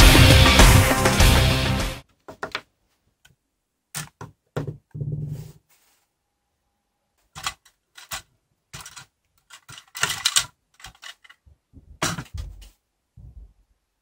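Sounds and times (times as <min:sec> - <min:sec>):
plastic parts clattering: 0:07.3 - 0:11.4, 0:12.0 - 0:12.8.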